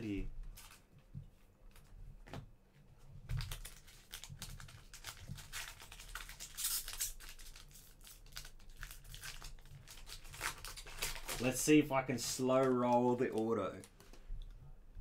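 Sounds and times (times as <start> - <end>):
wrapper tearing rustle: 3.3 - 14.1
card pack crinkling: 3.3 - 14.2.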